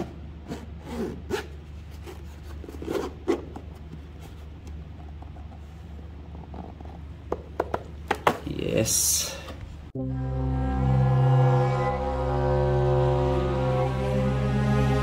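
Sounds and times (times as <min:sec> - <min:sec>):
low steady hum: 0:00.0 - 0:15.0
zipper rasping open: 0:00.4 - 0:03.4.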